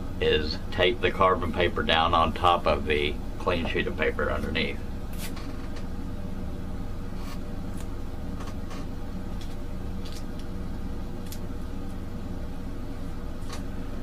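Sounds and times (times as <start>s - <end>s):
steady low hum: 0.0s - 14.0s
tape and paper crackling: 9.4s - 10.5s.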